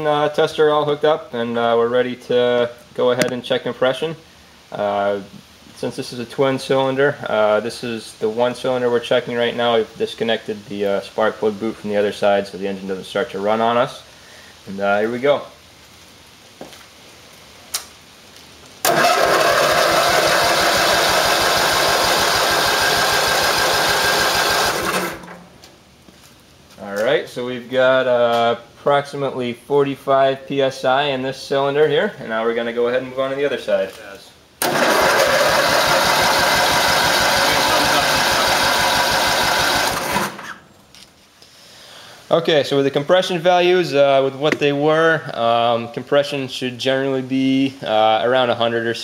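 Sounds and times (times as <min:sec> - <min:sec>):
small click: 0:17.7 - 0:17.9
engine cranking without firing: 0:18.8 - 0:25.5, 0:34.6 - 0:40.6.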